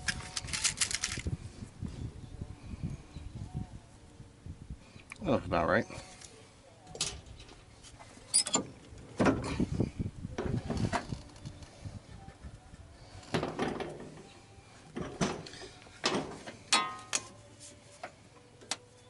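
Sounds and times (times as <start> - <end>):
metal tools clinking and knocking: 8.3 - 8.7.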